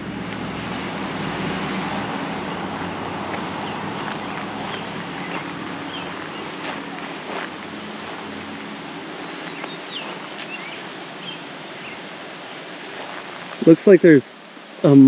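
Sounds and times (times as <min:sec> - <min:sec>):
low vehicle engine hum: 0:00.0 - 0:13.8
steady rushing hiss: 0:00.0 - 0:15.0
footsteps on dry ground: 0:03.2 - 0:11.4, 0:12.9 - 0:13.6
faint bird chirps: 0:09.1 - 0:12.0.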